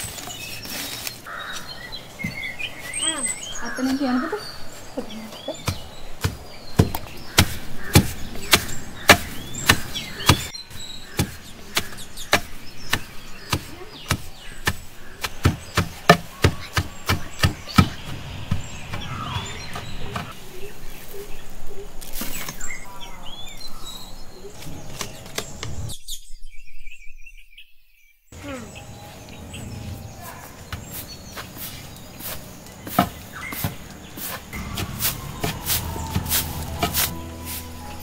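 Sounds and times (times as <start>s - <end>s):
birds chirping: 0.0s - 38.0s
wooden pestle pounding in mortar: 5.6s - 10.5s, 11.1s - 18.0s
grain rustling: 30.8s - 38.0s.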